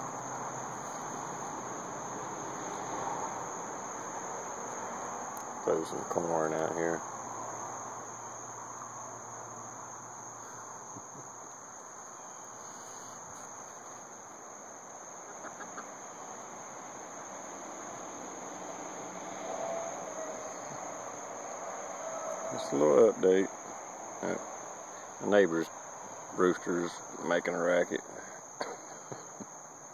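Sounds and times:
insects droning: 0.0 - 29.9
chickens clucking softly: 15.2 - 16.4.

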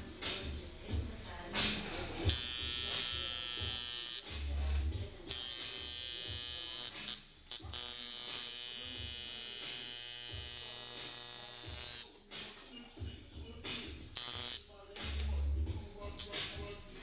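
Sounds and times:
tattoo machine buzzing: 2.2 - 12.1, 14.1 - 14.7.

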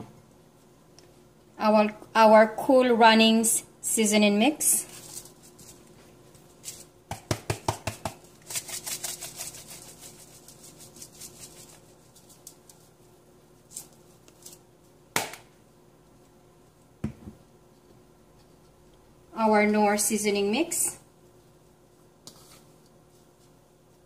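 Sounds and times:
seasoning packet crinkling: 8.4 - 13.0.

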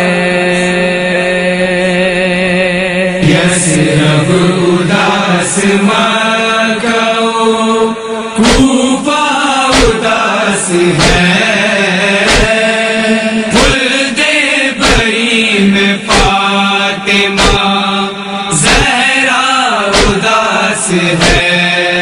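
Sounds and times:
person chanting a lament: 0.0 - 22.0
sharp drum beat: 8.4 - 8.8, 9.7 - 10.0, 11.0 - 11.3, 12.2 - 12.6, 13.6 - 13.8, 14.8 - 15.2, 16.1 - 16.4, 17.4 - 17.7, 18.5 - 19.0, 19.9 - 20.2, 21.2 - 21.5.

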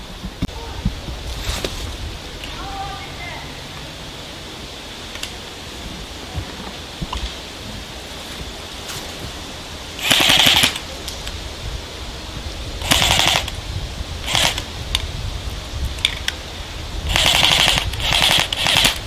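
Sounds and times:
airsoft guns firing bursts: 10.0 - 10.8, 12.8 - 13.5, 14.3 - 14.6, 17.1 - 19.0.

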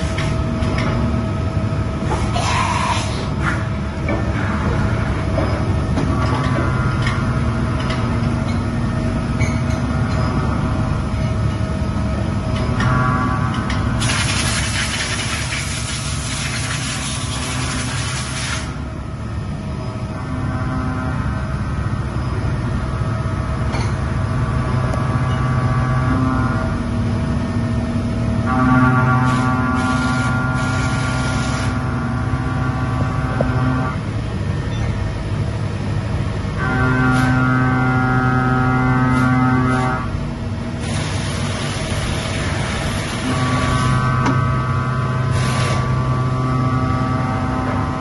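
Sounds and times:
machine hum: 0.0 - 48.0
coolant spraying: 14.0 - 18.7.

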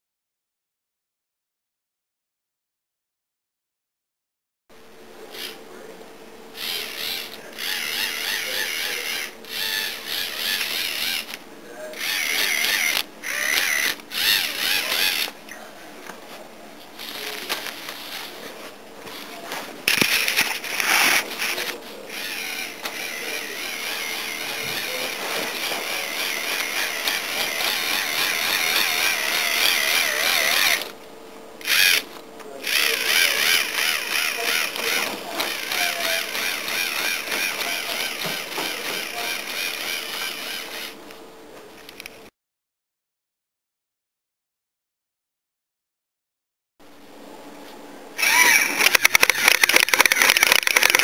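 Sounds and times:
toy motor whining with gear rattle: 6.6 - 11.4, 12.0 - 15.4, 17.0 - 18.4, 19.1 - 30.9, 31.6 - 41.0, 48.2 - 51.0.

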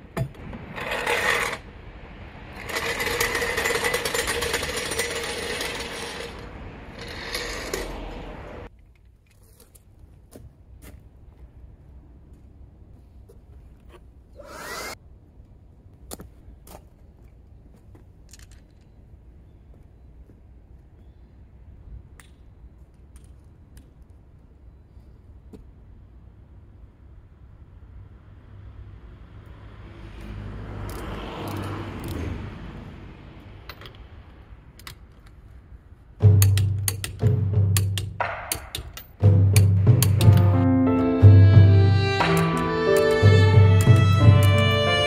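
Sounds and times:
car passing: 0.0 - 8.7, 27.7 - 35.0, 39.0 - 45.0
hand tool whirring: 2.5 - 8.7, 14.4 - 15.0
sharp tool clicks: 36.4 - 40.4.

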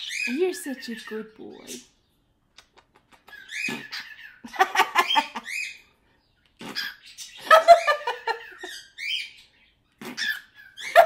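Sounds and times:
cockatiel chattering and chirping: 2.6 - 5.8.

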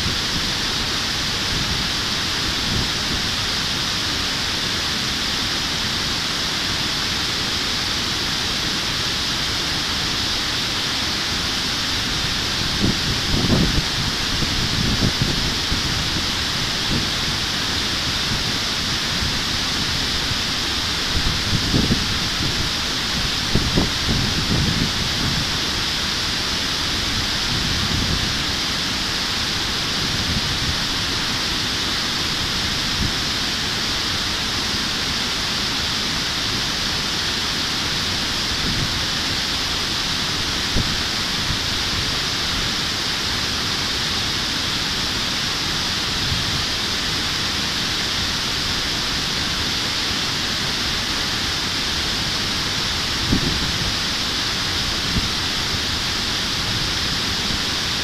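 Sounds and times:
stream rushing over weir: 0.0 - 58.0.

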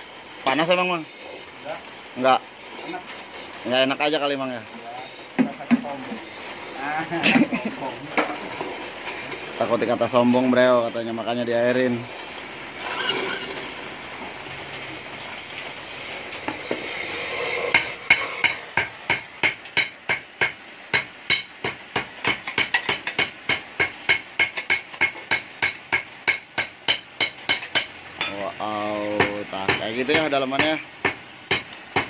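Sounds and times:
cutting torch hissing: 0.0 - 32.0
hammer striking steel: 17.7 - 28.4, 29.2 - 32.0.

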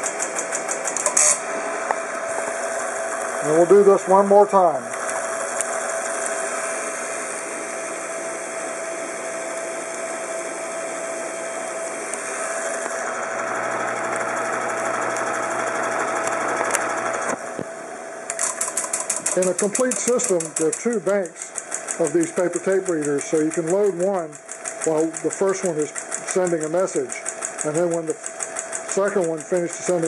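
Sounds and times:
fast even clicking: 0.0 - 1.4, 18.3 - 30.0
teletype mechanical clatter: 0.0 - 1.4, 12.8 - 17.4, 18.3 - 30.0
teletype motor humming: 0.0 - 30.0.

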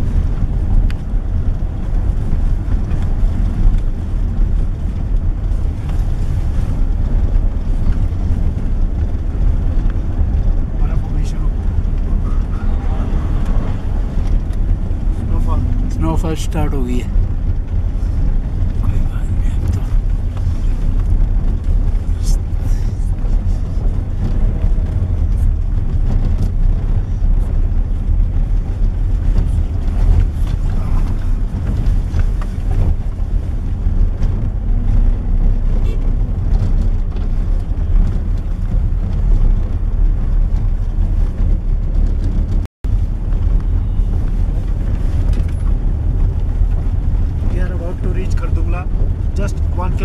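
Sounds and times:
car engine and tyres rumbling: 0.0 - 50.0.

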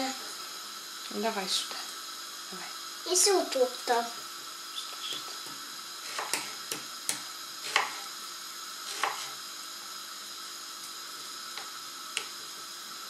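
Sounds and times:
steady hiss: 0.0 - 13.0
knife chopping on wooden board: 5.4 - 8.1, 8.9 - 9.4.

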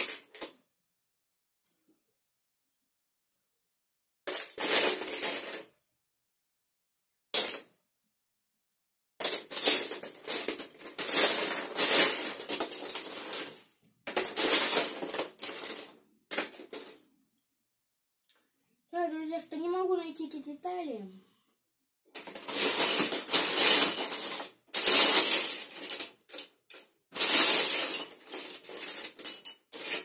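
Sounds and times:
plastic bricks clattering: 4.3 - 5.7, 9.2 - 17.1, 22.1 - 30.0.

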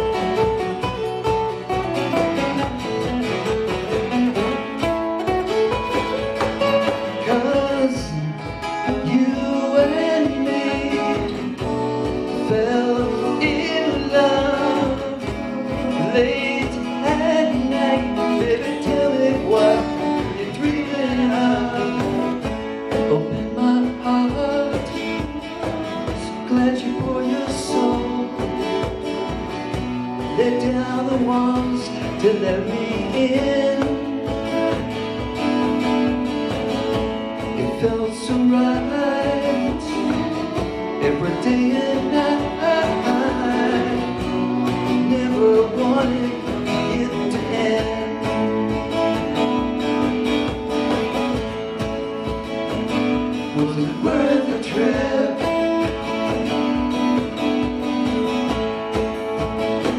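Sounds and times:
acoustic guitars strumming: 0.0 - 59.9
cajon beat: 0.0 - 59.9
man singing: 6.6 - 34.9, 37.4 - 50.0, 53.1 - 57.7.

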